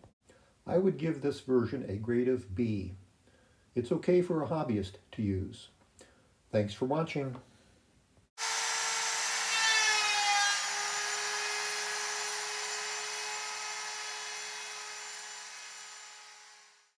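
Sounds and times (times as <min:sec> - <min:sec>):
electric router motor whining: 0:08.4 - 0:16.9.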